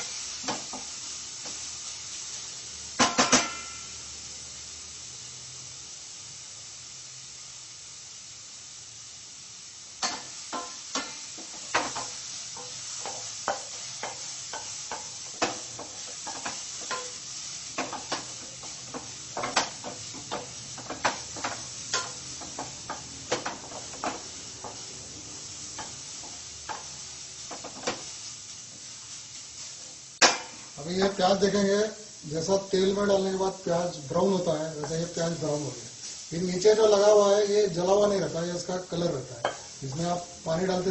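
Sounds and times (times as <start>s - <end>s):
onions sizzling in a pan: 0.0s - 40.9s
spatula scraping and tapping pan: 10.0s - 24.9s, 25.7s - 28.1s, 39.4s - 40.1s.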